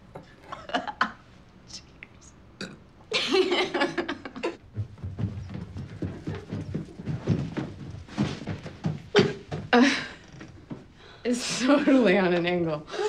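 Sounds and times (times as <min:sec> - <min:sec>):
person belching: 0:02.6 - 0:02.8.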